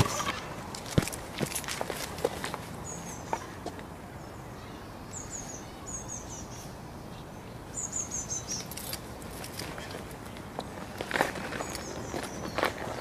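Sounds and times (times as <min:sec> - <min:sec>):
outdoor background noise: 0:00.0 - 0:13.0
bird chirping: 0:04.2 - 0:09.0.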